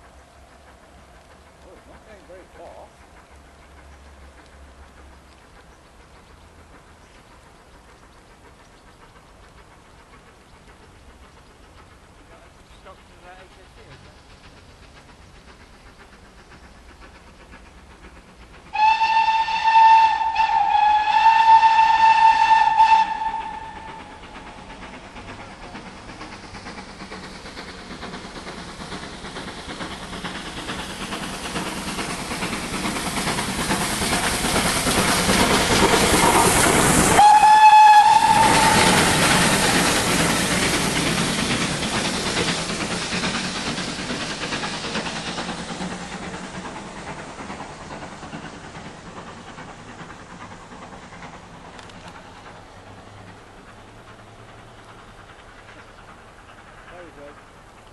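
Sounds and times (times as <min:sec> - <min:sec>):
train passing: 0:00.0 - 0:57.9
steam locomotive whistle: 0:18.7 - 0:24.7, 0:35.5 - 0:40.7.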